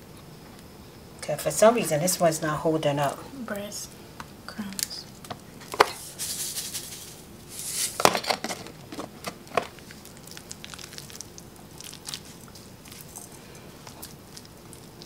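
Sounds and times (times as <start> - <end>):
bread crumbs shaken from container: 6.0 - 8.0.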